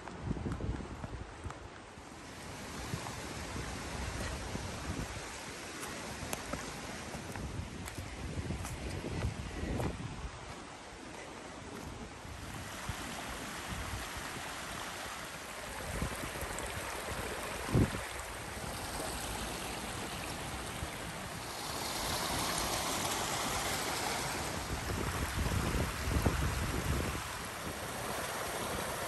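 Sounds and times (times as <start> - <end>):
running water rushing: 8.9 - 29.0.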